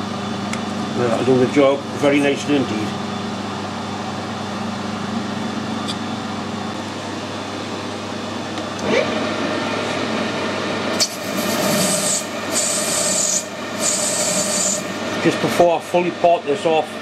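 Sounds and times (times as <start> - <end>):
lathe humming: 6.2 - 17.0
motor starting with rising whine: 8.8 - 15.6
lathe tool scraping metal: 11.0 - 15.2.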